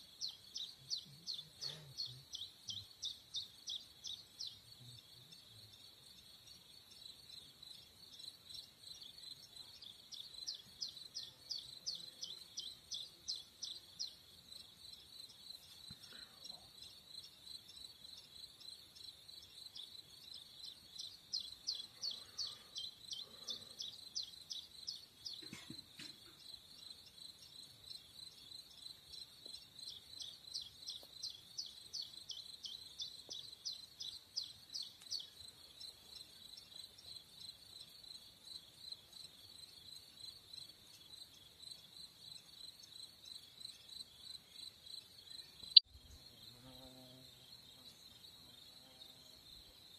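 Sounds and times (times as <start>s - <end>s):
nearby cricket chirping: 0.0s - 49.9s.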